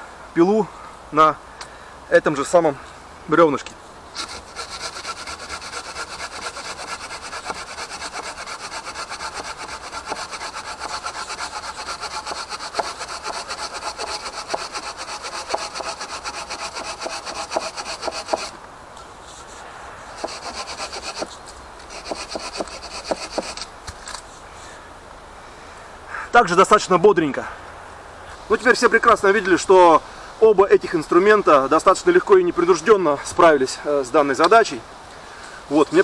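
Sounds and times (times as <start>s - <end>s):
hand saw cutting wood: 4.2s - 18.6s, 20.2s - 23.7s.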